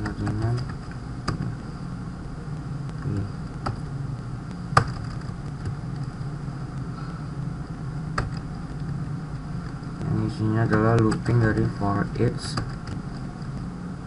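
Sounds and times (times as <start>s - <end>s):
computer keyboard keystrokes: 0.0s - 1.6s, 8.2s - 8.5s, 10.6s - 11.7s, 12.4s - 13.6s
low hum: 0.0s - 14.0s.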